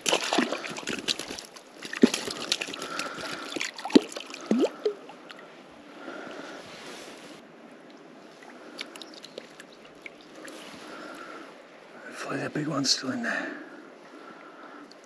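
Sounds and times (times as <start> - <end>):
water gurgling: 0.0 - 5.2
stream water splashing: 0.0 - 5.4, 8.0 - 11.2.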